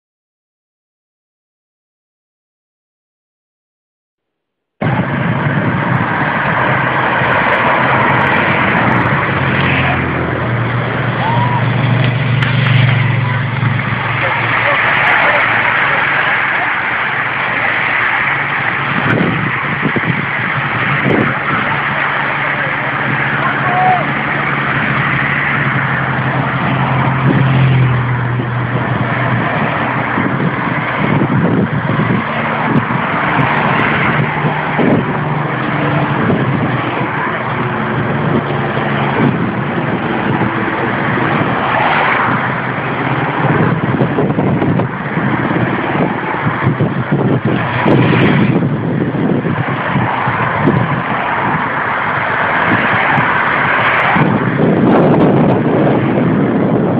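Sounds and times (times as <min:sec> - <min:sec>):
tyres on the road: 0:04.2 - 0:56.9
people's voices: 0:04.8 - 0:27.8
cars driving past: 0:04.8 - 0:56.9
steady noisy wash: 0:04.8 - 0:56.9.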